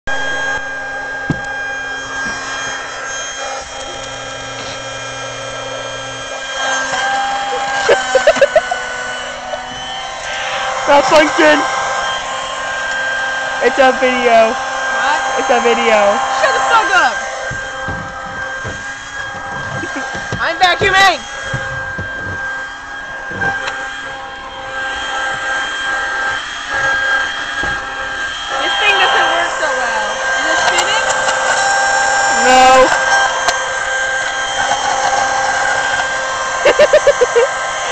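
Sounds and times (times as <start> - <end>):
handheld vacuum motor whine: 0.1 - 37.9
nozzle scraping upholstery: 1.2 - 5.6, 15.5 - 30.0.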